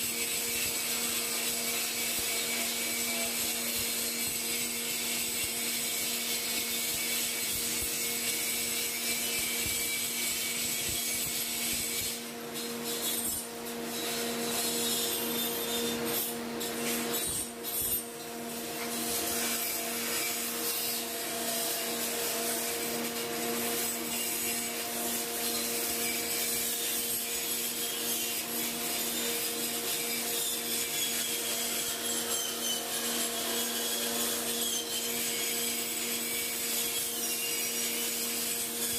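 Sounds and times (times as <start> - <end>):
power grinder grinding metal: 0.0 - 38.9.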